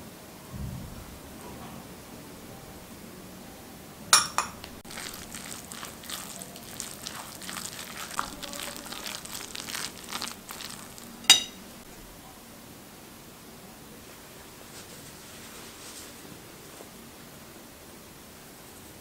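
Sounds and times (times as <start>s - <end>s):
spoon clinking on glass bowl: 4.2s - 4.8s, 10.1s - 11.7s
wet crunchy stirring: 4.2s - 12.0s.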